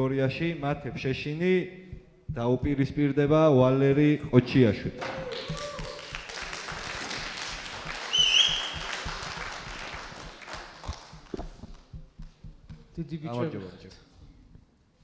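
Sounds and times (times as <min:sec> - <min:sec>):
audience applauding: 0:05.2 - 0:11.8.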